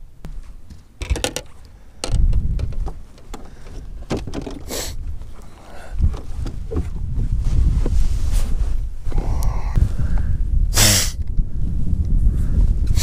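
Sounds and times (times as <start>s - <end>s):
person moving about a boat: 0.0s - 9.1s
fishing gear clicking and knocking: 1.0s - 4.7s
wind rumbling on microphone: 1.0s - 13.0s
rustle: 2.8s - 9.4s.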